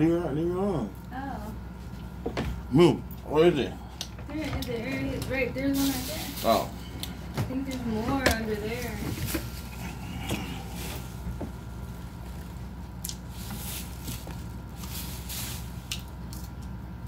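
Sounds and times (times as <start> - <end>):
low background hum: 0.0 - 17.0
chewing and crunching food: 9.0 - 17.0.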